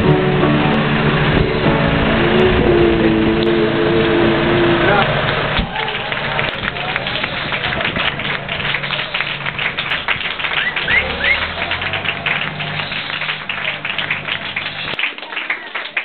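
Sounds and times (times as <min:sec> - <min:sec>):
crowd applause: 0:00.0 - 0:16.0
short rising whistles: 0:08.8 - 0:15.0.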